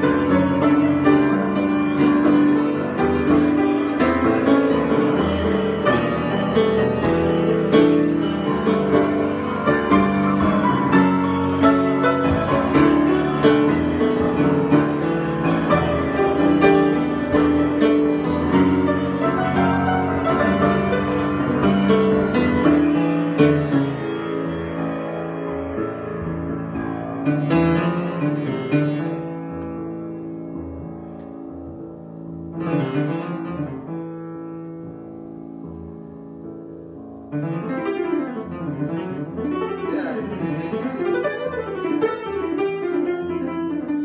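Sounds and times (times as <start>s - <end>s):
solo grand piano improvisation: 0.0s - 44.0s.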